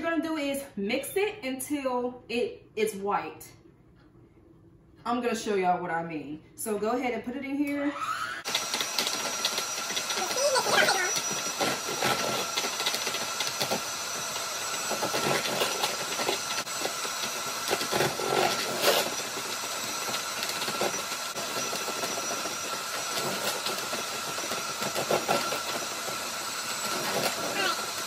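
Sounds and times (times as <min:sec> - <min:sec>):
electric mixer running: 0:07.8 - 0:28.0.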